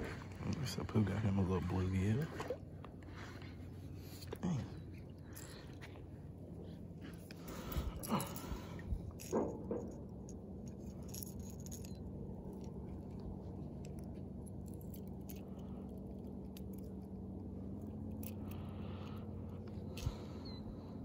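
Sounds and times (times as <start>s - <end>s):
steady low hum: 0.0s - 21.0s
fishing lure hooks clicking and rattling: 8.0s - 12.8s, 13.8s - 17.2s.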